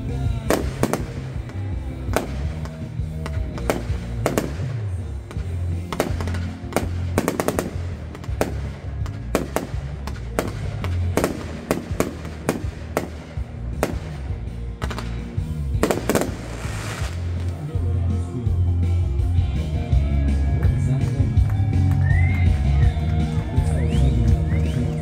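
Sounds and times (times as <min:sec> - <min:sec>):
fireworks crackling: 0:00.0 - 0:25.0
fireworks bangs: 0:00.1 - 0:17.9.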